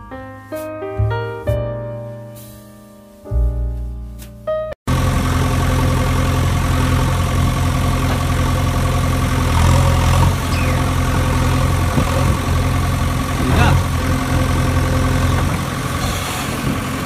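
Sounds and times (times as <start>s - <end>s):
piano music: 0.0s - 4.8s
large engine idling: 4.9s - 17.0s.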